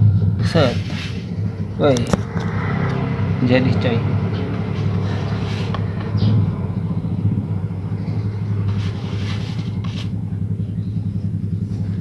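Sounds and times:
low hum: 0.0s - 12.0s
faint rustles: 8.0s - 12.0s.

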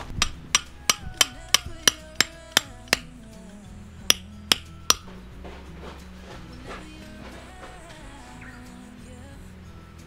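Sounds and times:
hammer striking metal tent peg: 0.0s - 3.2s, 4.1s - 5.1s.

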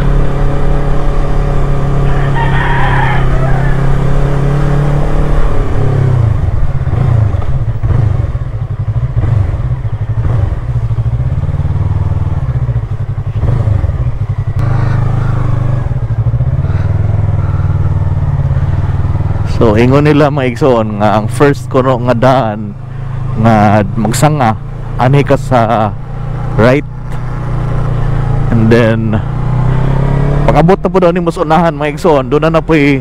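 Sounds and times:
motorcycle engine running: 0.0s - 33.0s
rooster crowing: 2.0s - 4.0s.

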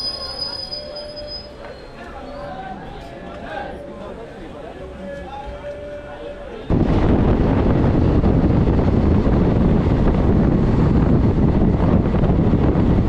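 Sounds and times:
train running rumble: 6.7s - 13.0s
wind buffeting microphone: 6.7s - 13.0s.

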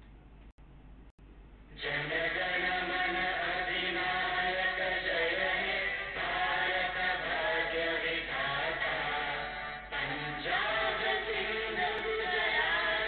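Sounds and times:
boys singing together: 1.8s - 13.0s.

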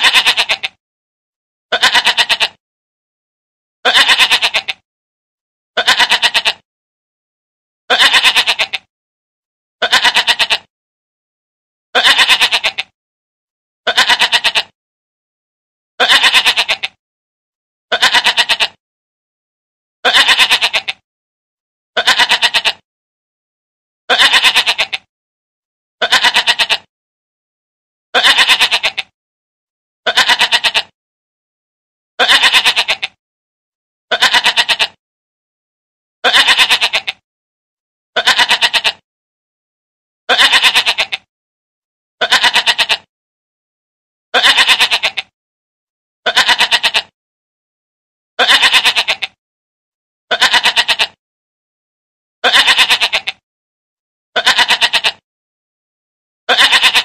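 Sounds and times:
goat bleating: 0.0s - 0.8s, 1.7s - 2.6s, 3.8s - 4.8s, 5.8s - 6.6s, 7.9s - 8.9s, 9.8s - 10.7s, 12.0s - 13.0s, 13.9s - 14.8s, 16.0s - 17.0s, 17.9s - 18.8s, 20.0s - 21.0s, 22.0s - 22.8s, 24.1s - 25.1s, 26.0s - 26.9s, 28.2s - 29.2s, 30.1s - 31.0s, 32.2s - 33.2s, 34.1s - 35.0s, 36.2s - 37.2s, 38.2s - 39.0s, 40.3s - 41.3s, 42.2s - 43.1s, 44.4s - 45.4s, 46.3s - 47.2s, 48.4s - 49.4s, 50.3s - 51.2s, 52.4s - 53.4s, 54.4s - 55.3s, 56.5s - 57.0s.

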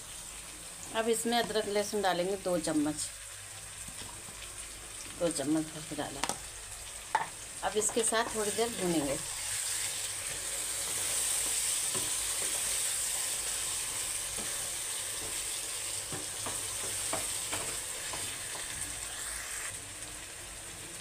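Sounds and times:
food sizzling in hot oil: 0.0s - 21.0s
spatula tapping and scraping pan: 7.1s - 9.2s, 11.4s - 12.7s, 16.1s - 18.8s.

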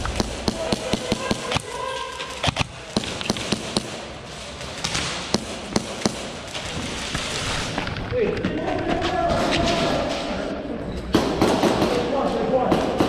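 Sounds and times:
airsoft gunshots: 0.0s - 1.8s, 2.4s - 4.1s
pellets striking barricades: 0.0s - 7.8s.

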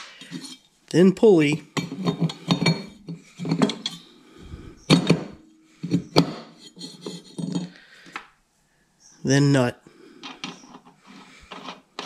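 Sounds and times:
metal parts knocking and clinking: 1.8s - 4.0s, 4.9s - 7.8s, 10.2s - 12.0s.

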